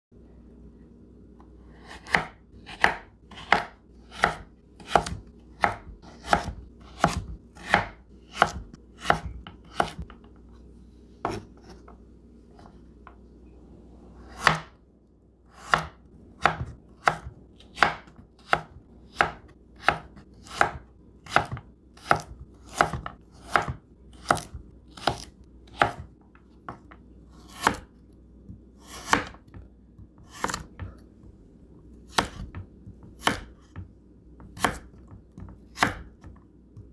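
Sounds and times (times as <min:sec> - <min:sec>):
knife chopping on wooden board: 0:01.8 - 0:10.2, 0:11.2 - 0:11.9, 0:14.2 - 0:14.8, 0:15.6 - 0:27.9, 0:28.5 - 0:31.0, 0:32.1 - 0:36.9.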